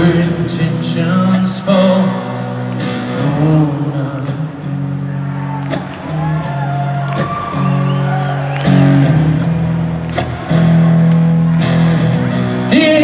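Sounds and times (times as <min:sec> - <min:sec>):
bass and keyboard chords: 0:00.0 - 0:13.0.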